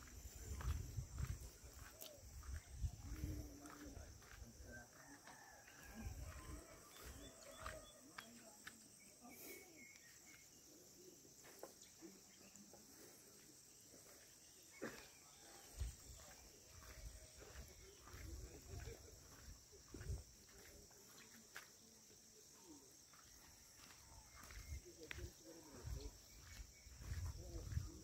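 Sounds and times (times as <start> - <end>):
faint bird chirps: 0.0 - 21.7, 22.6 - 28.0.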